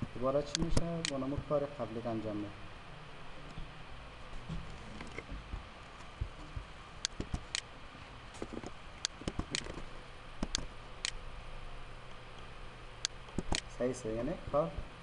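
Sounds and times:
computer mouse clicking: 0.5s - 1.2s, 7.0s - 7.6s, 8.4s - 9.8s, 10.4s - 11.2s, 13.0s - 13.7s
soft low thumps: 4.4s - 7.5s.

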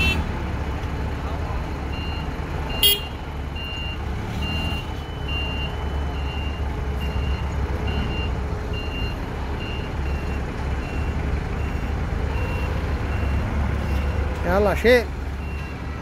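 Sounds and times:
forklift engine rumble: 0.0s - 16.0s
reverse alarm beeping: 1.9s - 14.2s.

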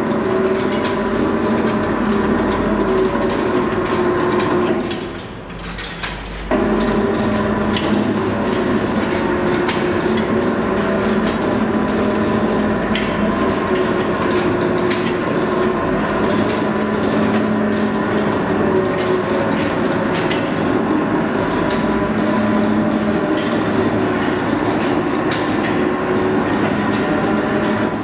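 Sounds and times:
workshop machinery humming: 0.0s - 28.0s.

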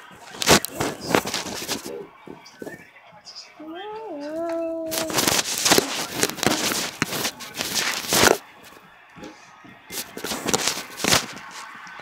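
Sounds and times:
phone handling rustling: 5.0s - 8.4s.

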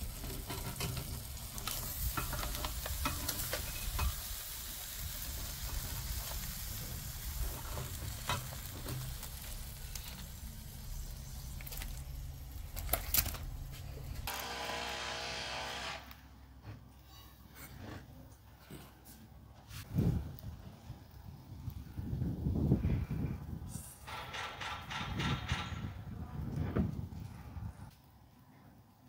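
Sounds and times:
lobster sizzling on a grill: 0.0s - 14.4s.

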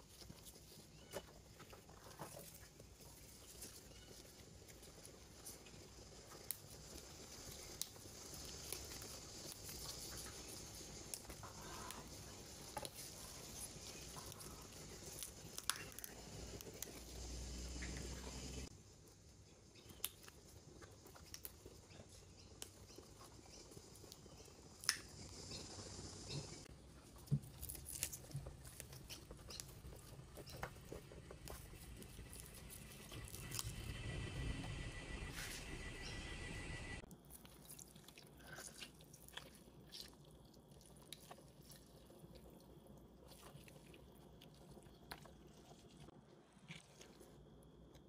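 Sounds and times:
plant stems snapping: 24.8s - 25.1s, 27.4s - 29.7s
lemon squishing in hand: 27.1s - 33.9s, 37.1s - 48.0s.

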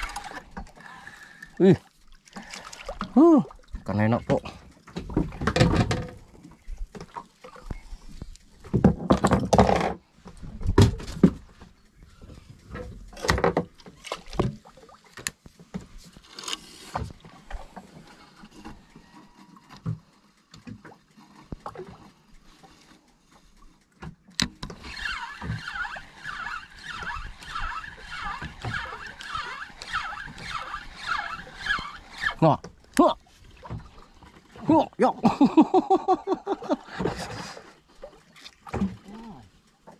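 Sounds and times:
fishing reel whirring: 24.6s - 32.4s.

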